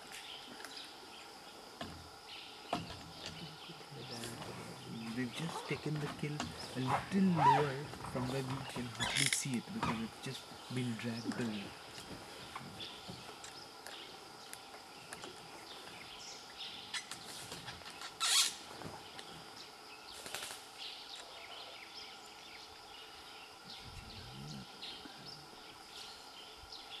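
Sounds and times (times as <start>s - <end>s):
faint insect hum: 0.0s - 27.0s
bird chirps: 2.3s - 11.7s.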